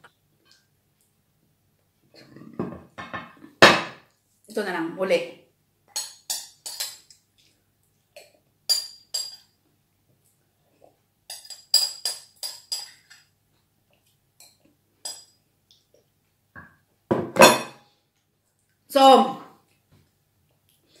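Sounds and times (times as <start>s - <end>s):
spoon clinking against glass bowl: 5.9s - 7.1s, 8.7s - 9.5s, 11.3s - 13.2s
glass bowl knocking on table: 16.6s - 17.8s.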